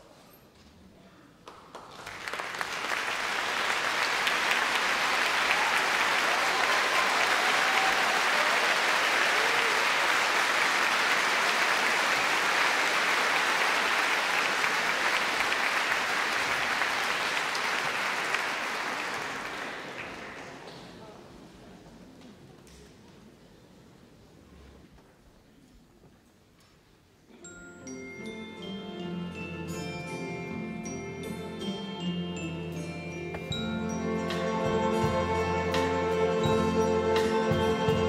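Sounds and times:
audience applauding: 0:01.4 - 0:21.0.

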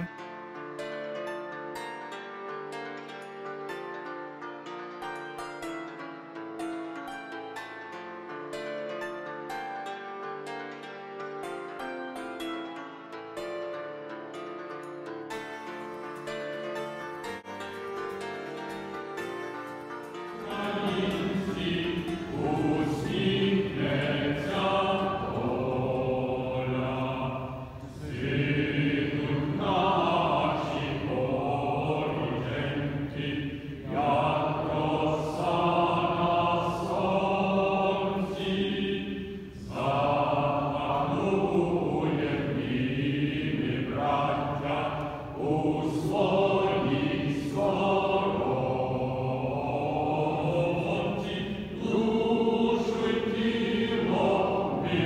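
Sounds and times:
guitar piece: 0:00.0 - 0:48.7
group of voices singing: 0:20.4 - 0:55.0.

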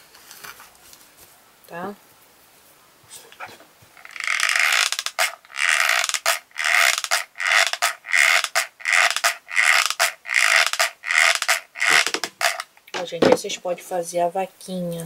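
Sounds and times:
glue gun trigger scraping: 0:04.3 - 0:12.6.

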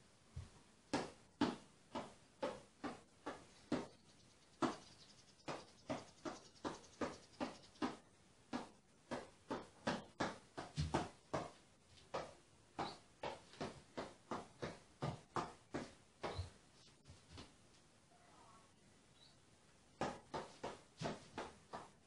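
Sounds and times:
hand slapping spinning basketball: 0:05.4 - 0:16.5, 0:20.0 - 0:22.0.

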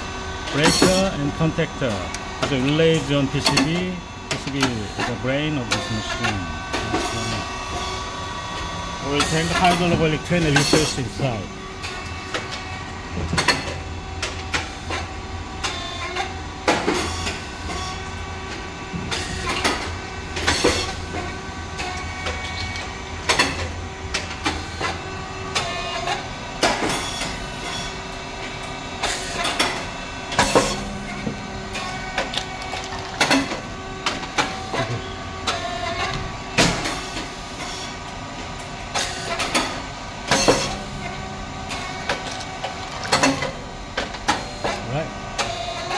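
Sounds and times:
machine hum: 0:00.0 - 0:45.9
mechanical clicks and clacks: 0:01.8 - 0:07.4.

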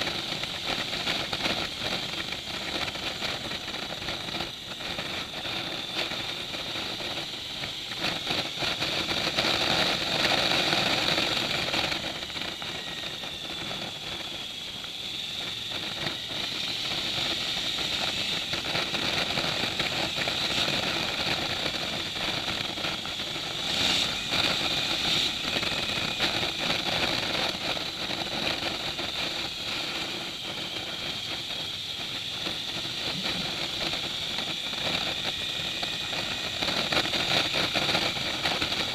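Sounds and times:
motorcycle engine running: 0:00.0 - 0:38.9
wind and road noise: 0:00.0 - 0:38.9.

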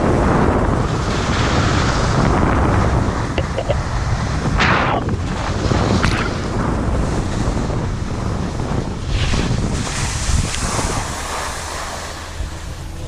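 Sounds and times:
wind buffeting microphone: 0:00.0 - 0:13.0
sliding on packed snow: 0:04.2 - 0:13.0.

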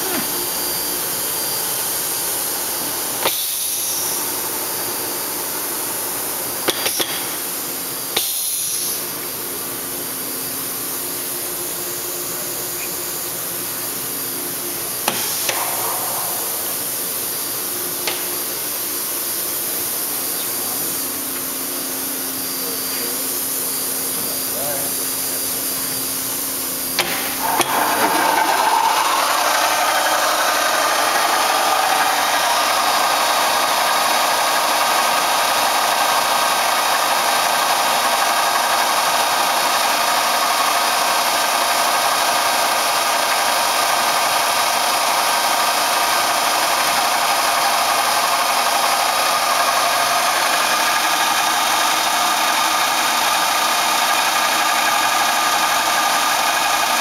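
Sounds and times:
drilling machine whine: 0:00.0 - 0:57.0.

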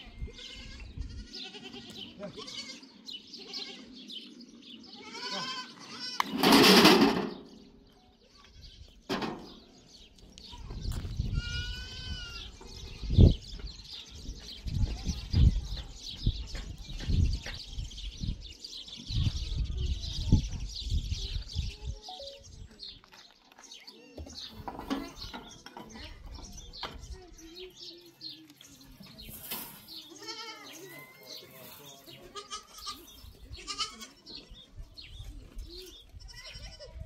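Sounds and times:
goats bleating: 0:00.2 - 0:04.0, 0:04.8 - 0:06.3, 0:30.1 - 0:30.9, 0:32.2 - 0:34.2.

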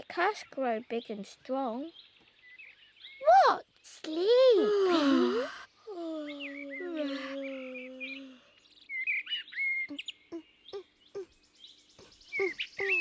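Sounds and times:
small birds chirping: 0:00.0 - 0:13.0
person yawning: 0:04.6 - 0:08.5.

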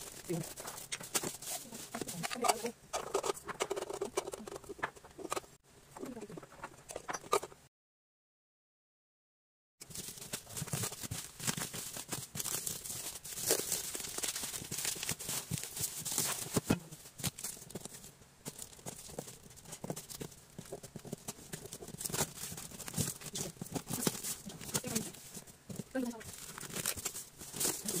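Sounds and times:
hands rustling on cardboard box: 0:00.0 - 0:02.7, 0:09.8 - 0:28.0
cardboard and tape tearing: 0:09.9 - 0:20.2, 0:21.0 - 0:28.0.

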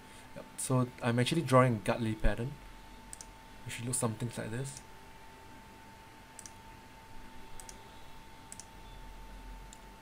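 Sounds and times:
computer mouse clicking: 0:03.1 - 0:03.3, 0:06.4 - 0:06.6, 0:07.5 - 0:07.8, 0:08.5 - 0:08.8, 0:09.7 - 0:09.9.

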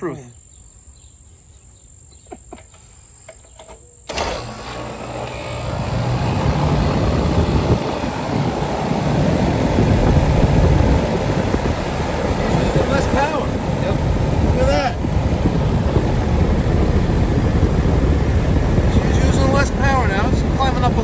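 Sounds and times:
air conditioner fan and compressor running: 0:01.8 - 0:21.0.

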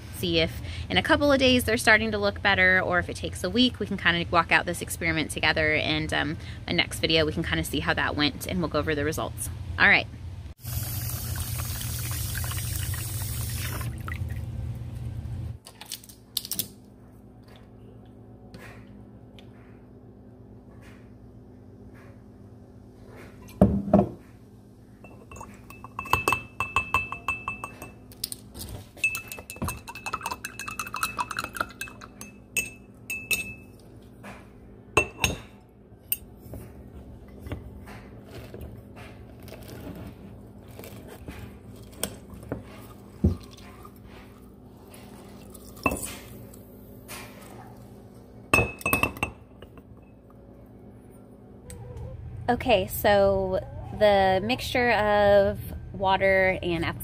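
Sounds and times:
metal spoon clinking glass jar: 0:25.1 - 0:28.0, 0:29.0 - 0:33.7.

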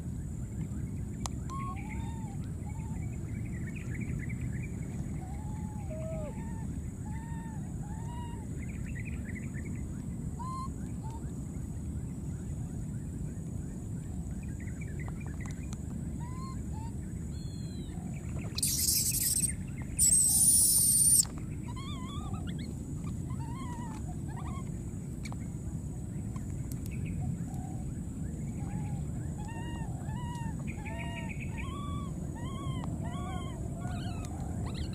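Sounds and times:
low background noise: 0:00.0 - 0:34.9
baby monkeys cooing: 0:18.5 - 0:24.7, 0:28.7 - 0:34.9
monkey shrill screeches: 0:18.6 - 0:22.7.

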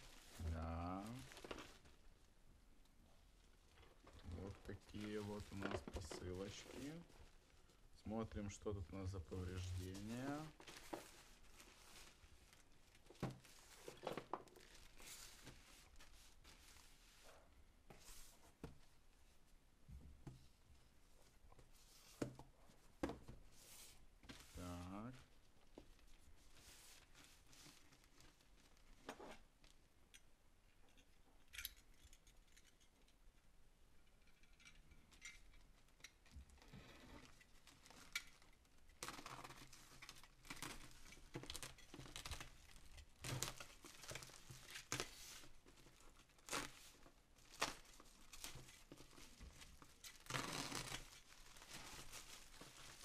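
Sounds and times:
plastic crinkling and tearing: 0:00.0 - 0:02.1, 0:03.4 - 0:17.4, 0:24.6 - 0:29.8, 0:36.5 - 0:53.0.

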